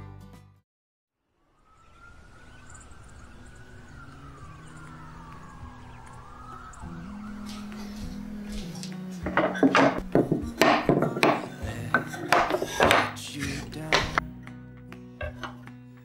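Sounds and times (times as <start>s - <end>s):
emergency vehicle siren wailing: 1.3s - 10.6s
city traffic rumble: 1.7s - 14.2s.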